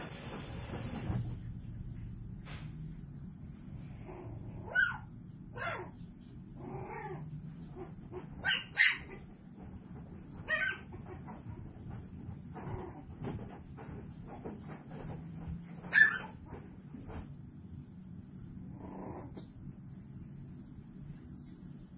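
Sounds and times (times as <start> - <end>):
puppies whining and yelping: 4.1 - 6.0, 6.8 - 9.3, 10.3 - 11.2, 15.8 - 16.4.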